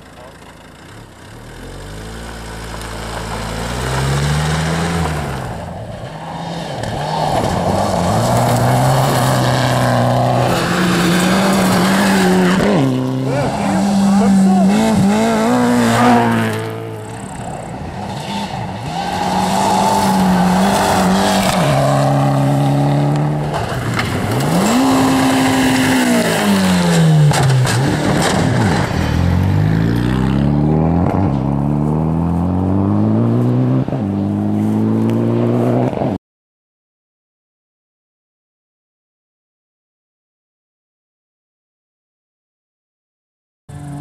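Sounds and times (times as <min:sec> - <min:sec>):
rally car engines revving: 0:00.0 - 0:36.2.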